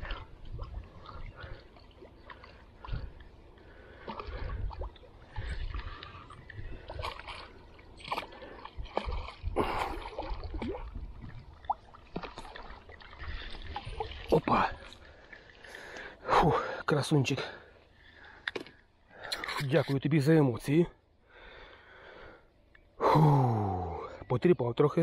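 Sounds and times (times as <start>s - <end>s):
water splashing and sloshing: 0.0s - 20.0s.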